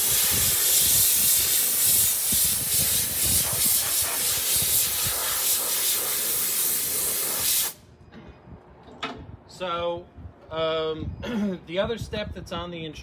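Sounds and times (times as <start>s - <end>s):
compressed air blow gun hissing: 0.0s - 7.8s.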